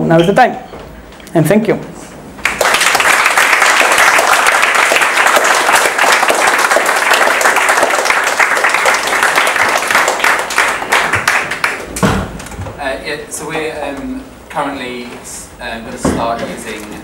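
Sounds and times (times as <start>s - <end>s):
audience applauding: 2.4s - 12.0s.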